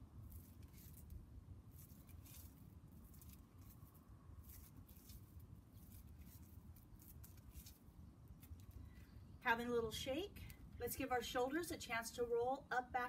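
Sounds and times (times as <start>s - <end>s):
low background rumble: 0.0s - 13.0s
faint rustles and scuffs: 0.2s - 9.2s.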